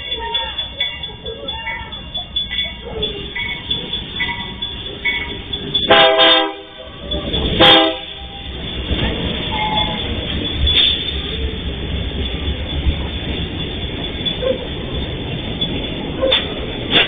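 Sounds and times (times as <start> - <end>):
low rumble of train: 0.0 - 17.0
locomotive horn blasts: 5.9 - 7.0, 7.6 - 8.2.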